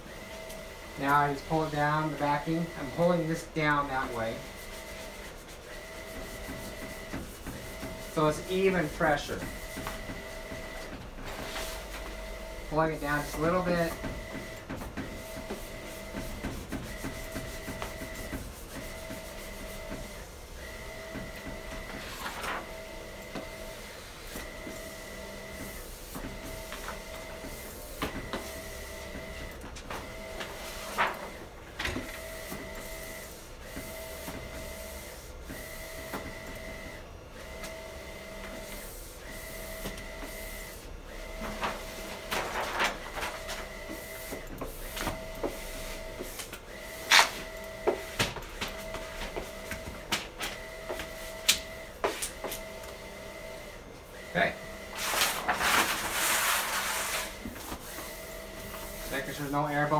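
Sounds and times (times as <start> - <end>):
printer carriage whirring: 0.0 - 59.9
plastic squeegee scraping vinyl: 54.9 - 57.9.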